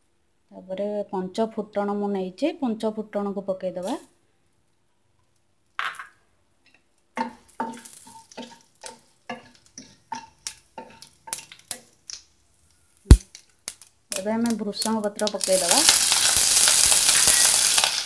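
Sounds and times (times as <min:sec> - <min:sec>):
spices sizzling in ghee: 0:06.8 - 0:18.0
spatula scraping a pan: 0:07.2 - 0:11.7.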